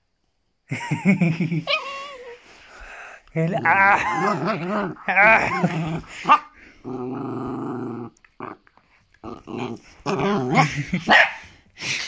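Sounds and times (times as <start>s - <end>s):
dog growling: 3.3s - 11.0s.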